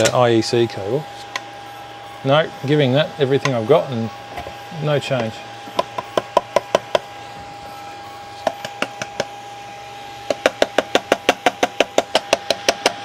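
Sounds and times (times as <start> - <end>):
knocking on power supply casing: 5.7 - 7.1, 8.4 - 9.4, 10.2 - 13.0.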